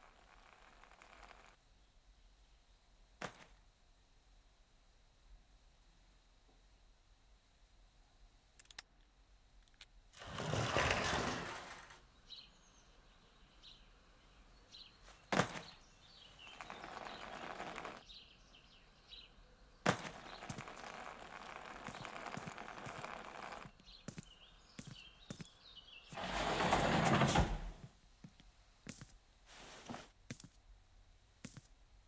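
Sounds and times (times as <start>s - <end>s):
faint birds chirping: 0.0s - 4.1s, 6.4s - 30.9s
sliding glass door rumbling open: 10.2s - 12.0s, 26.2s - 27.8s
suitcase wheels rolling on wood floor: 10.2s - 12.0s, 16.4s - 18.0s, 19.9s - 24.2s, 26.1s - 27.8s.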